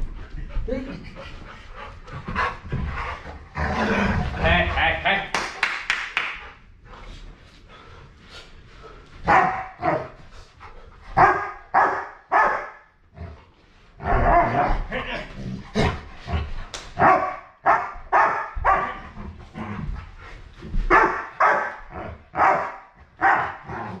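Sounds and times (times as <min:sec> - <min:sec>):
large dog barking: 0:09.2 - 0:10.2, 0:11.2 - 0:12.8, 0:17.0 - 0:19.0, 0:20.9 - 0:24.0.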